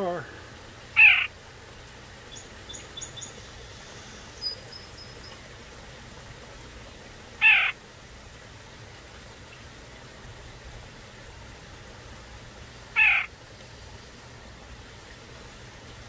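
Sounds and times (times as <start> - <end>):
nuthatch nasal calls: 0.9 - 1.4, 2.3 - 5.4, 7.4 - 7.8, 12.9 - 13.3
faint high bird chirps: 2.3 - 5.4.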